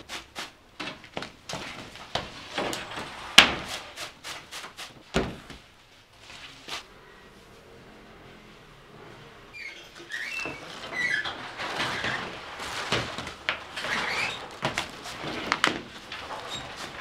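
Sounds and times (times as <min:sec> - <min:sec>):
wooden oven peel knocking: 0:00.0 - 0:05.6, 0:10.1 - 0:17.0
metal baking trays clattering: 0:00.8 - 0:05.5, 0:09.8 - 0:17.0
short squeaks: 0:09.5 - 0:12.4.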